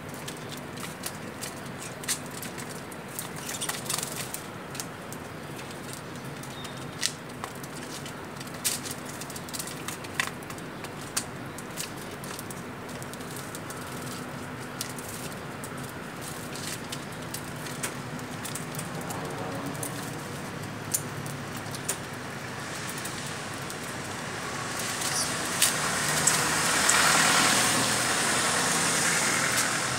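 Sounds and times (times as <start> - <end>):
birds fluttering: 0.2 - 4.5, 22.9 - 29.9.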